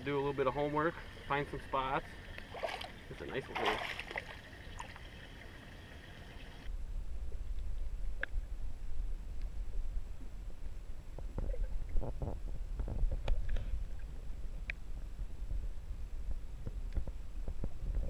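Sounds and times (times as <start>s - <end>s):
open-air hiss: 0.0s - 12.8s
muffled underwater rumble: 0.1s - 18.0s.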